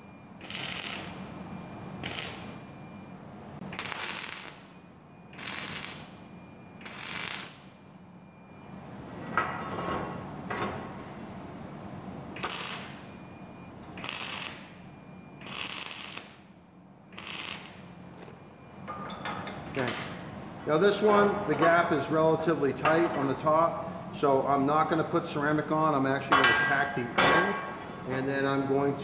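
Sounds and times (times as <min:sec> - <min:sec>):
welding arc hissing crackle: 0:00.0 - 0:01.3, 0:02.0 - 0:02.6, 0:03.7 - 0:04.7, 0:05.3 - 0:06.2, 0:06.8 - 0:07.8, 0:12.4 - 0:13.0, 0:14.0 - 0:16.5, 0:17.1 - 0:17.9.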